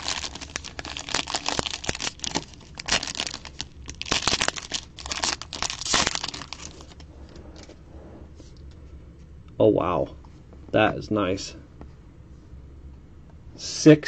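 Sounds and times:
plastic wrapping crinkling and ripping: 0:00.0 - 0:07.1.

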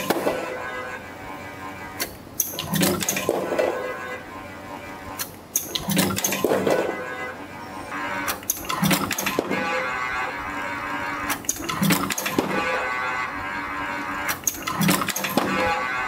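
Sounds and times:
machine whine: 0:00.0 - 0:16.0
metallic clacks: 0:05.2 - 0:07.3, 0:14.2 - 0:16.0.

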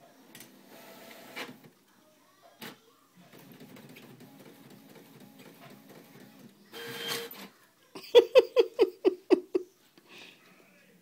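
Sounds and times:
printer whirring: 0:00.2 - 0:01.7, 0:03.3 - 0:07.5.

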